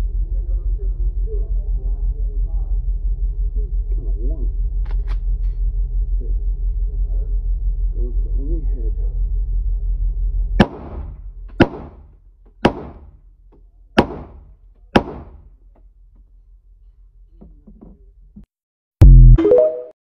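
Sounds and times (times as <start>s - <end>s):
low rumble: 0.0s - 12.1s
echoing gunshots: 10.6s - 12.0s, 12.6s - 13.1s, 14.0s - 14.4s, 15.0s - 15.4s.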